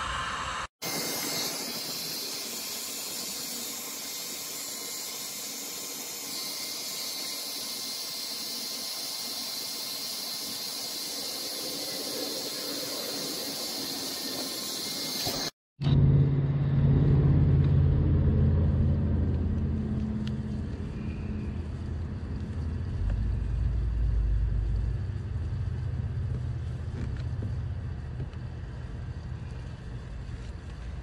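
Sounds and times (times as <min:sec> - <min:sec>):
heat gun blowing hot air: 0:00.0 - 0:15.6.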